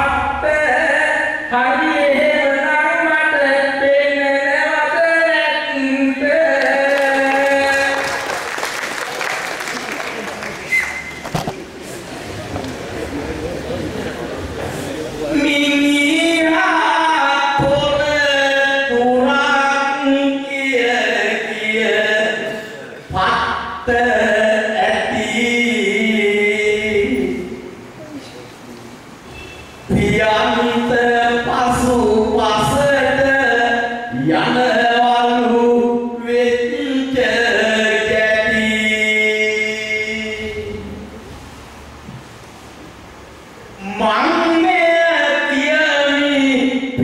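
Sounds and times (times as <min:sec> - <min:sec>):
man chanting verse: 0:00.0 - 0:08.3, 0:29.9 - 0:41.1, 0:43.8 - 0:47.0.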